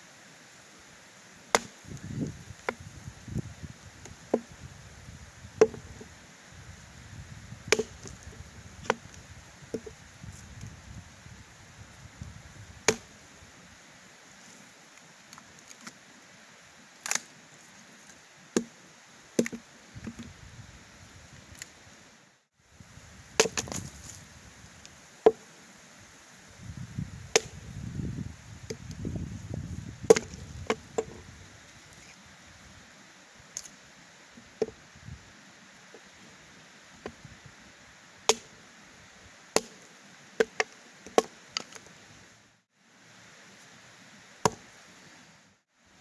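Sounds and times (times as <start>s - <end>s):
axe chopping log: 1.5s - 2.9s, 4.1s - 4.5s, 5.6s - 6.0s, 7.7s - 9.1s, 12.8s - 13.1s, 19.4s - 20.3s, 23.4s - 23.9s, 27.3s - 27.6s, 30.0s - 31.2s, 38.3s - 38.5s, 39.6s - 39.8s, 40.4s - 41.8s, 44.4s - 44.7s.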